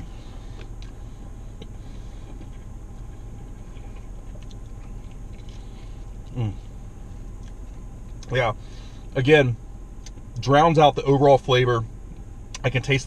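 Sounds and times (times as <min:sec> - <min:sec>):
car idling: 0:00.0 - 0:13.0
chewing clicks: 0:03.4 - 0:06.4.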